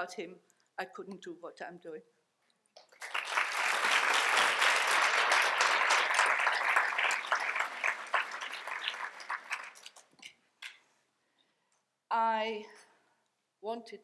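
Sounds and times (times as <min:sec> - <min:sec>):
audience applauding: 0:02.8 - 0:10.2.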